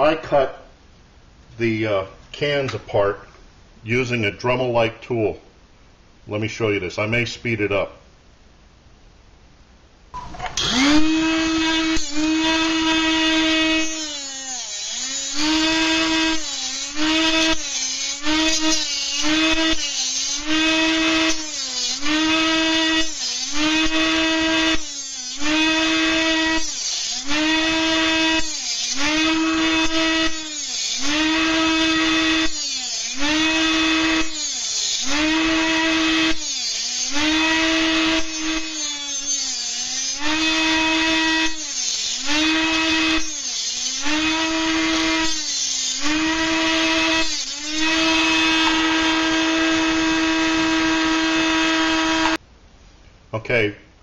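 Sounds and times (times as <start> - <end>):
rotary tool cutting metal can: 10.6 - 52.4.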